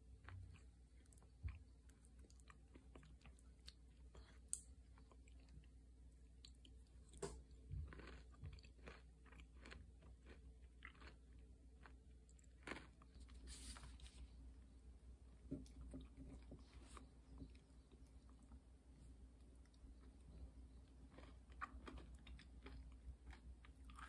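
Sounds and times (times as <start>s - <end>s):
chewing and crunching: 0.0s - 14.1s, 19.4s - 24.0s.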